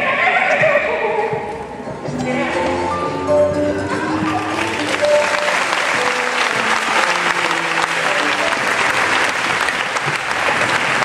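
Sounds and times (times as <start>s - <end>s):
faint music: 0.0s - 11.0s
audience applauding: 4.2s - 11.0s.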